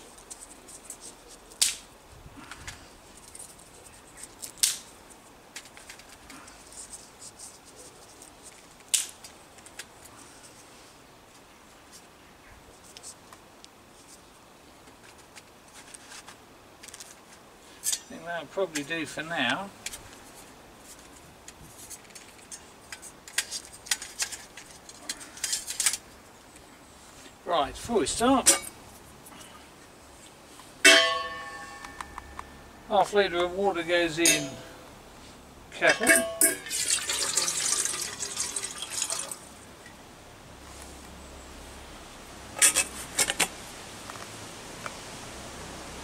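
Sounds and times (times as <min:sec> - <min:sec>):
dry twigs snapping: 0:01.5 - 0:01.9, 0:04.2 - 0:06.4, 0:08.8 - 0:09.9
metal parts clicking and clinking: 0:22.1 - 0:26.0, 0:34.2 - 0:34.6.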